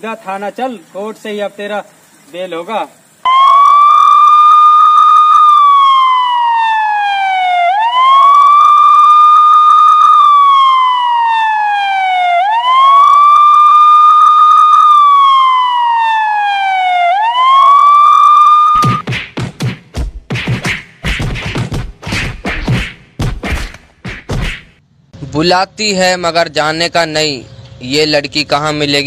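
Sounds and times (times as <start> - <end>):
police siren wailing: 3.3 - 19.0.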